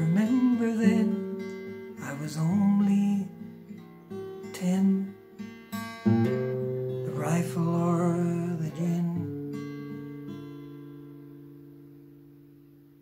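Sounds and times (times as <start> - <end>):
man singing: 0.0 - 1.3, 2.0 - 3.5, 4.4 - 5.2, 7.0 - 9.4
acoustic guitar strumming: 0.0 - 13.0.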